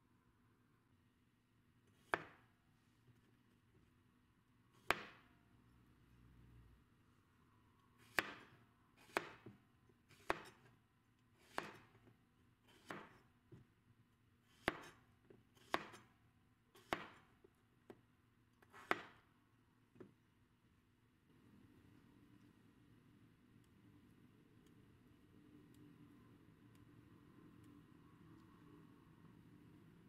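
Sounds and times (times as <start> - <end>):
knife chopping on cutting board: 2.0 - 2.4, 4.8 - 5.2, 8.0 - 10.7, 11.4 - 12.0, 12.7 - 13.6, 14.4 - 15.0, 15.6 - 16.1, 16.8 - 17.3, 18.6 - 19.2.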